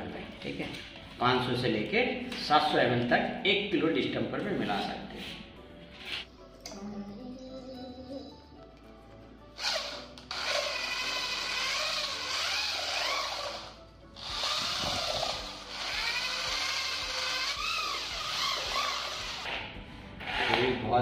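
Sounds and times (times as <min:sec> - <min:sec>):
electric drill motor whine: 0:09.6 - 0:19.5.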